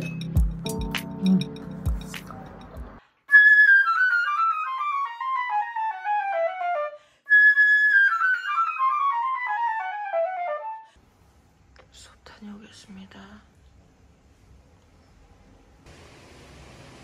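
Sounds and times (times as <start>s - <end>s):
solo flute playing descending runs: 3.3s - 10.9s.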